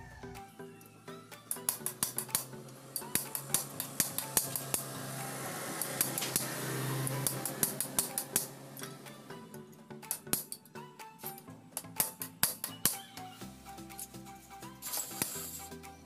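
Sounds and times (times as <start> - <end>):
hammer striking steel chisel: 1.5 - 5.0, 5.7 - 9.0.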